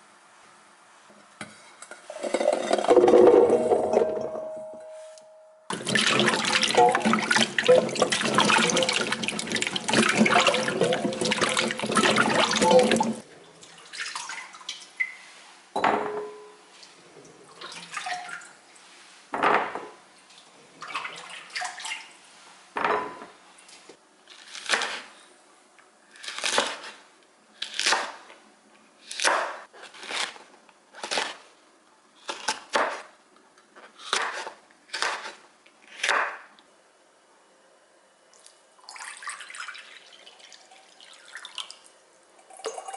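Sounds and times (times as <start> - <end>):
tap water running: 5.7 - 15.2, 38.8 - 42.9.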